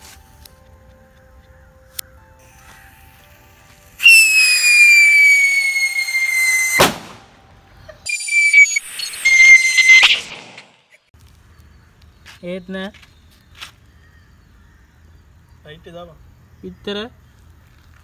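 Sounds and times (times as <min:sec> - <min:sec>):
whistling firework rockets: 0:04.0 - 0:07.3, 0:08.0 - 0:10.8
firework crack: 0:04.0 - 0:07.4, 0:08.1 - 0:10.9.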